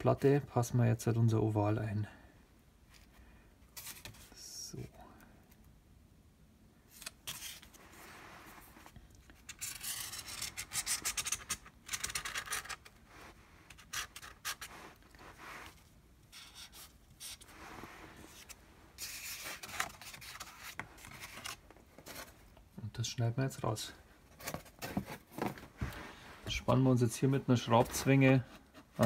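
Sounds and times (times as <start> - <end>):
marker scratching on metal: 16.3 - 17.5.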